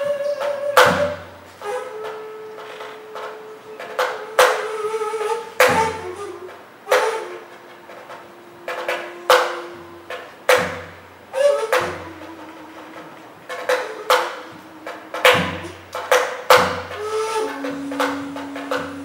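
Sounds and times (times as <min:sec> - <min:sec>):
tabla bass drum strokes: 0:00.0 - 0:19.0
tabla treble drum hits: 0:00.0 - 0:19.0
held drone note: 0:07.2 - 0:19.0.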